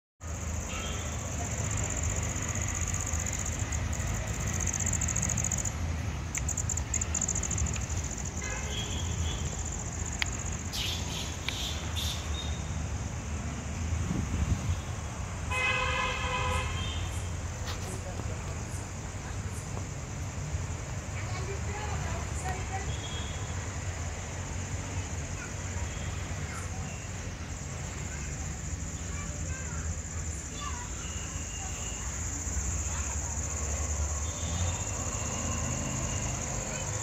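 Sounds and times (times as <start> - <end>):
vehicle horn honking: 8.4 - 9.5, 15.5 - 17.2.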